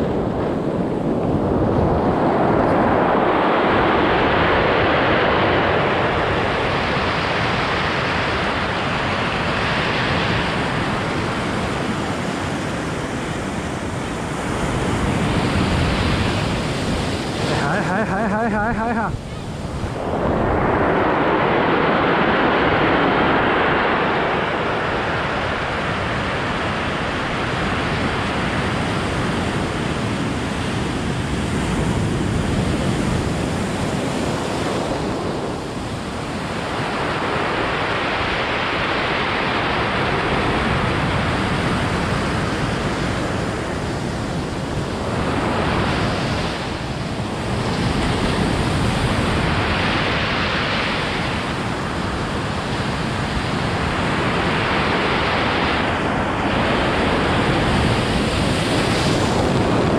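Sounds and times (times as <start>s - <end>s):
surf washing over pebbles: 0.0s - 59.9s.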